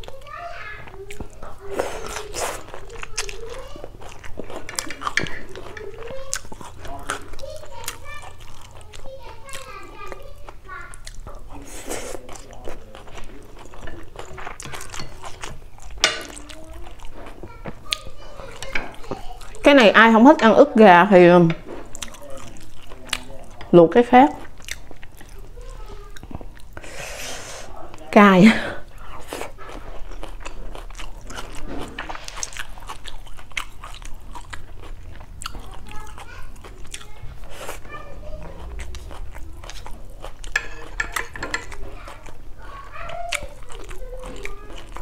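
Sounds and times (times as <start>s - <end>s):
close chewing with mouth clicks: 0.0s - 19.7s, 21.7s - 23.7s, 24.3s - 28.1s, 28.9s - 45.0s
close chewing mouth clicks: 0.9s - 11.6s, 24.4s - 25.5s, 32.5s - 37.8s, 43.1s - 45.0s
metal spoon clinking on a plate: 16.0s - 16.5s, 40.5s - 41.8s.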